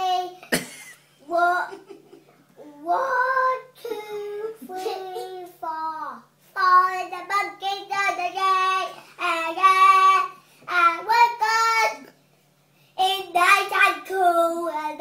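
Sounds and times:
young boy singing: 0.0s - 0.4s, 2.6s - 12.1s, 13.0s - 15.0s.

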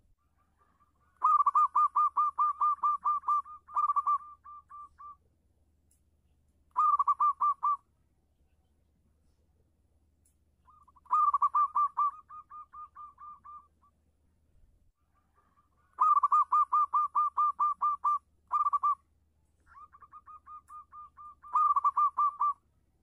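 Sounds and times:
dove cooing: 0.6s - 5.2s, 6.8s - 7.8s, 10.7s - 13.8s, 15.2s - 19.0s, 19.7s - 22.6s.

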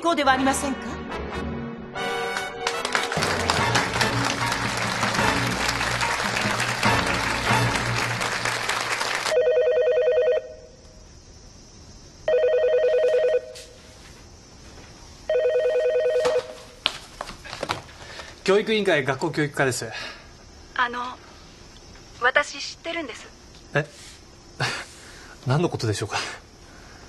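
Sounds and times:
soft background music: 0.0s - 8.7s
people applauding: 2.2s - 9.4s
telephone ringing electronic trill: 9.3s - 10.6s, 12.3s - 13.6s, 15.3s - 16.5s.

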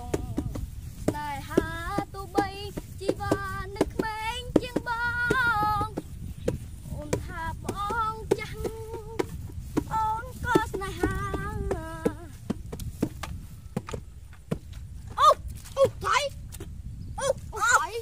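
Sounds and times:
boy singing a high tune: 0.0s - 6.0s, 6.8s - 12.4s, 17.2s - 18.0s.

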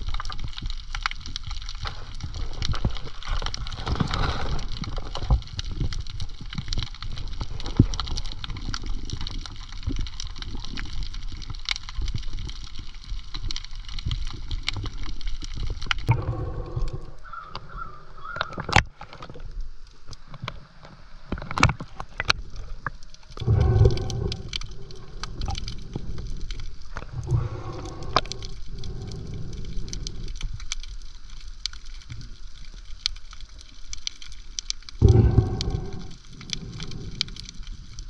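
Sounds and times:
water sloshing and gurgling: 0.0s - 38.0s
small clicks and knocks: 18.3s - 25.8s.

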